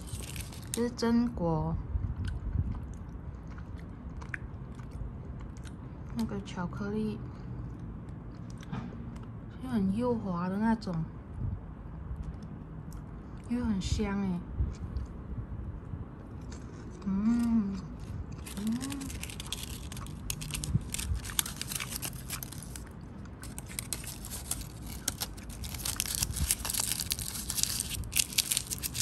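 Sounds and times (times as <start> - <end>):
foil wrapper crinkling: 0.0 - 1.0, 18.4 - 29.0.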